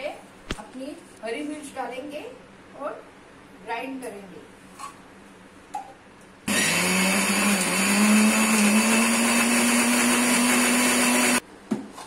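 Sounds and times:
electric mixer grinder running: 6.5 - 11.4.

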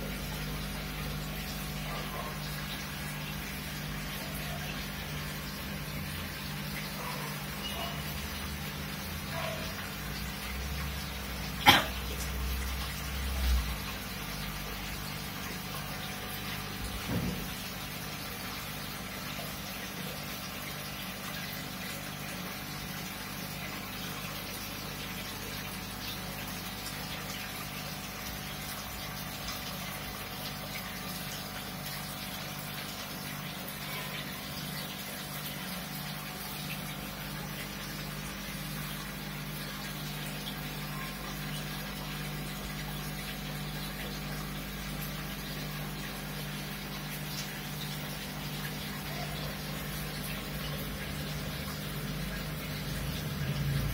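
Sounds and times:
low pump hum: 0.0 - 53.9
bubbling water rushing: 8.5 - 17.8, 34.4 - 53.9.

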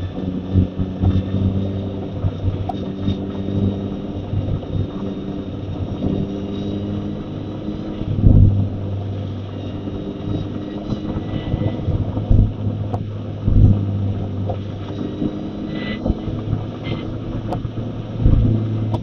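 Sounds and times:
car engine cruising: 0.0 - 19.0
road and wind noise: 0.0 - 19.0
short low thumps: 8.0 - 9.2, 11.1 - 19.0.

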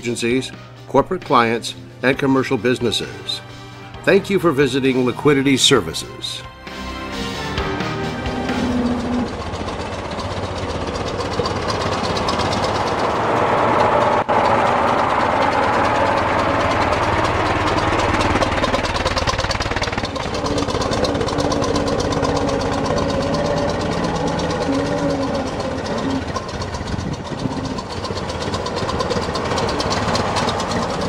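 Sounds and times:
car driving off: 6.7 - 31.0
car engine running: 7.0 - 31.0.

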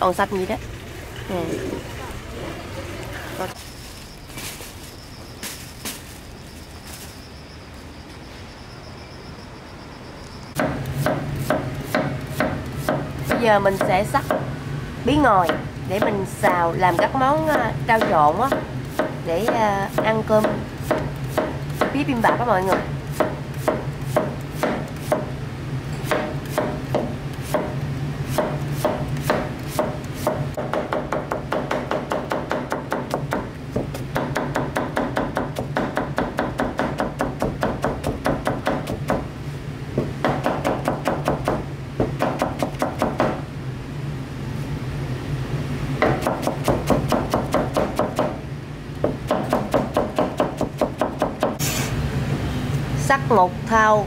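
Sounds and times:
knife chopping on cutting board: 22.6 - 25.3.

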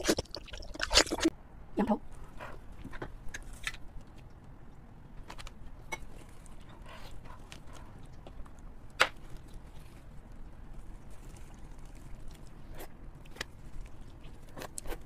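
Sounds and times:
wet tearing and squelching meat: 7.4 - 15.0.

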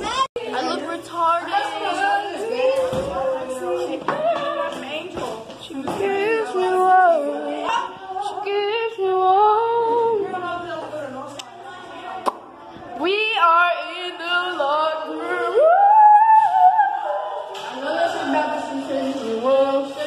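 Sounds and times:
person singing unaccompanied: 1.8 - 10.5, 13.0 - 20.0.

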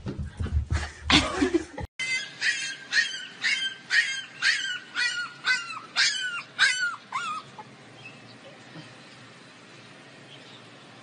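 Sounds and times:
puppy yipping and whimpering: 2.0 - 7.8.

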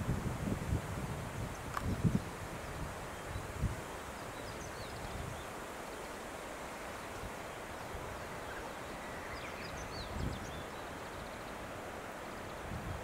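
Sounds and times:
wind rustling leaves: 0.0 - 13.0
faint bird chirps: 4.2 - 11.6.

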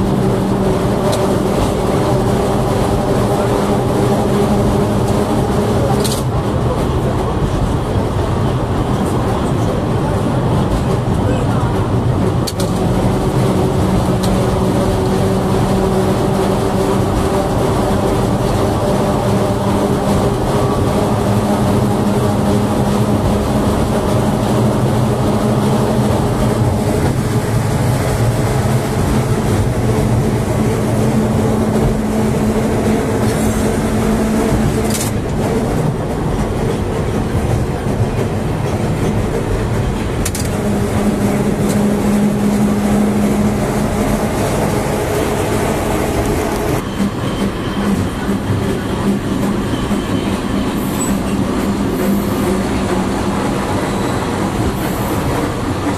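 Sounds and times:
tram hum and rolling wheels: 0.0 - 55.9.

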